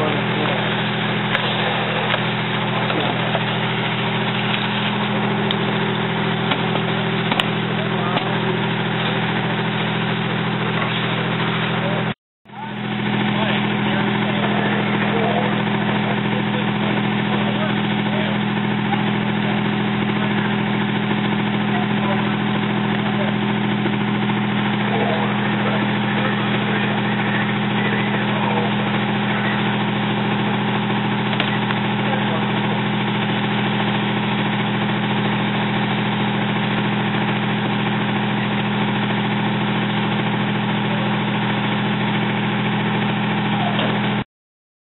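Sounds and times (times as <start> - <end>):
fire engine running: 0.0 - 44.2.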